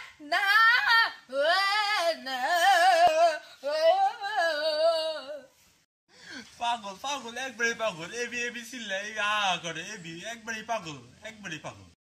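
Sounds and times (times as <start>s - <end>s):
boy singing: 0.1s - 5.5s.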